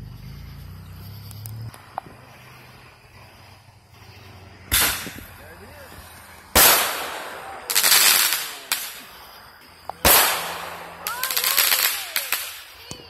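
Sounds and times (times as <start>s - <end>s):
firework crackling: 0.8s - 13.0s
fireworks bangs: 1.7s - 13.0s.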